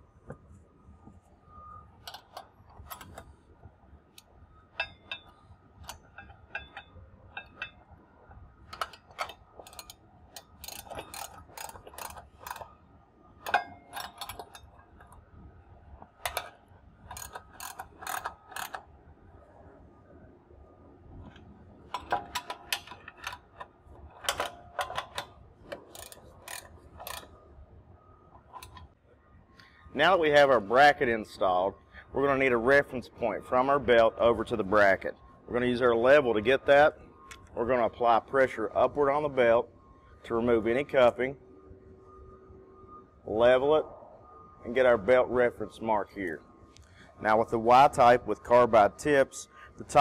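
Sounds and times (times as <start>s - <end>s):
ratchet wrench clicking: 8.7s - 12.7s, 13.4s - 15.2s, 16.2s - 18.8s, 21.9s - 27.3s.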